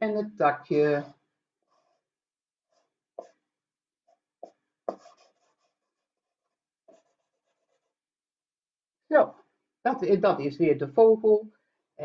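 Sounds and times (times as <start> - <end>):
marker pen scratching on paper: 0.7 - 8.1.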